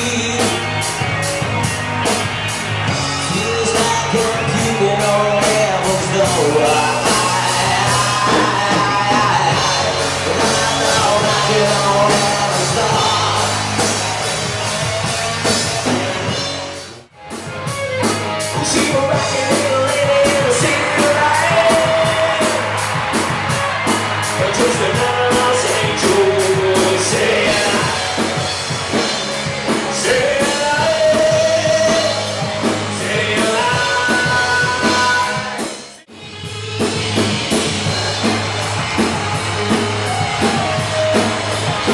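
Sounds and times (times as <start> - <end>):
male singer: 0.0 - 1.0, 3.1 - 14.0, 18.5 - 23.1, 24.2 - 35.8
live rock band playing: 0.0 - 41.9.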